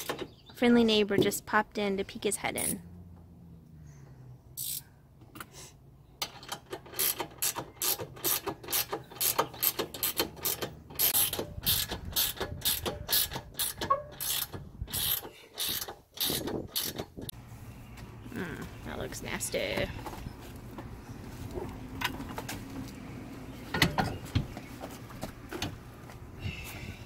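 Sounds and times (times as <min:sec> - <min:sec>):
ratchet wrench clicking: 0:04.6 - 0:04.8, 0:06.8 - 0:17.0.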